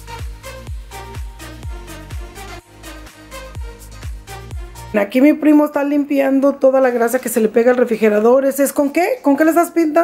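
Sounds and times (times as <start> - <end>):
electronic dance music: 0.0 - 5.0.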